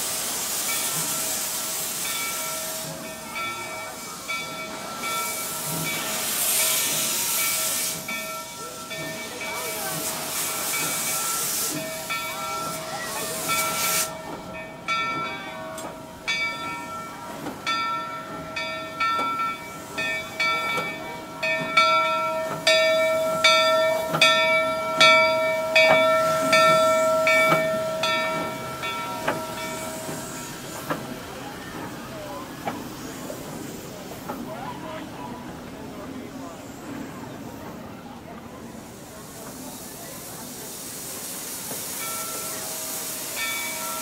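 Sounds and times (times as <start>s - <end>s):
loud hiss of escaping steam: 0.0s - 15.2s, 15.8s - 44.0s
locomotive bell ringing: 0.6s - 32.4s, 41.8s - 44.0s.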